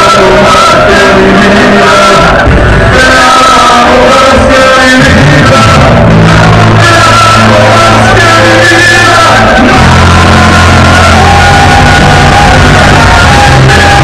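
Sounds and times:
live worship band music: 0.0 - 14.0
man shouting into a microphone: 0.0 - 14.0
electric guitar: 3.8 - 14.0.

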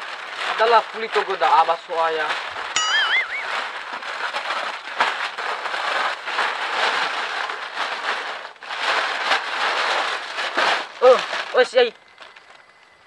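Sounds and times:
crackling hiss with clicks: 11.0 - 13.0.

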